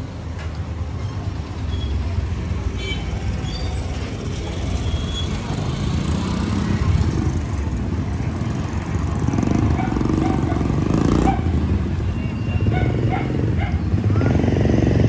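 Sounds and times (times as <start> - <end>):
motorcycle engines running: 0.0 - 15.0
motorcycle passing: 4.2 - 15.0.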